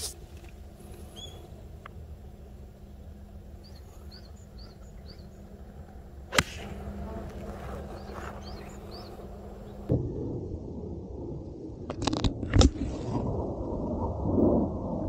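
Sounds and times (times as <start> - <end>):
small bird chirping: 1.0 - 1.6, 3.6 - 5.6, 7.7 - 9.9
golf club striking ball: 6.3 - 8.6.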